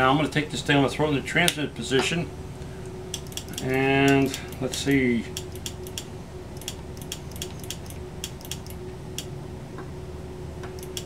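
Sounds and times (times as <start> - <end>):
steady hum: 0.0 - 11.0
transmitter key and relay clicking: 3.1 - 9.3, 10.8 - 11.0.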